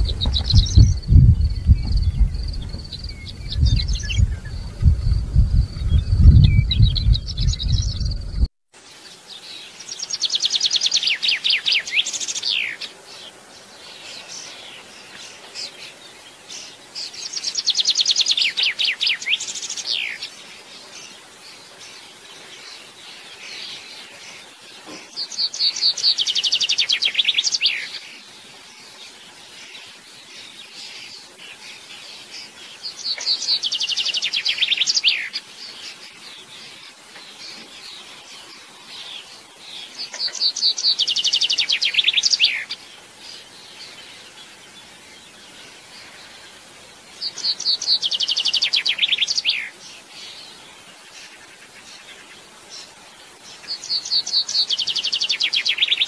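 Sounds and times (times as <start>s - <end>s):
soft faint bird notes: 0.0s - 8.5s
chaffinch singing: 0.0s - 56.0s.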